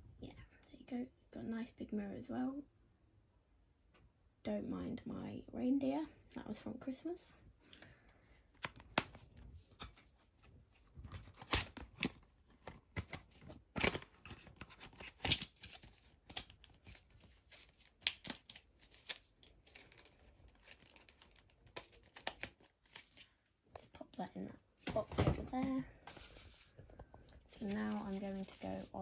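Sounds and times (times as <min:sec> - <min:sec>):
cardboard packaging rustling: 0:08.6 - 0:23.3, 0:24.9 - 0:29.0.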